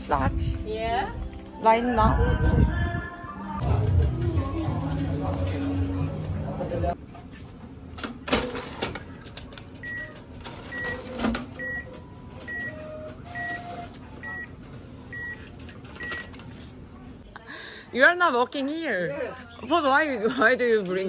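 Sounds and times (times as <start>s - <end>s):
cash dispenser clattering: 8.0s - 14.4s.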